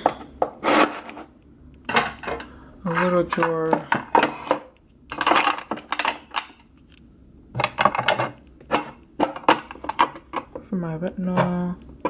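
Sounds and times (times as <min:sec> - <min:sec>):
small bottles clinking and rattling: 0:05.1 - 0:06.6.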